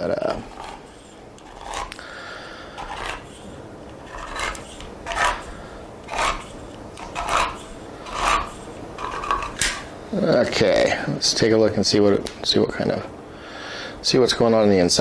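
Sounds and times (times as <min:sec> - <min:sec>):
can opener grinding: 0:00.0 - 0:09.9.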